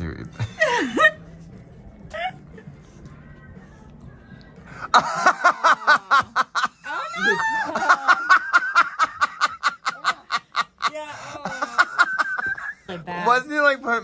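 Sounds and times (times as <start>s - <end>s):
high-pitched rhythmic laughter: 4.9s - 13.0s.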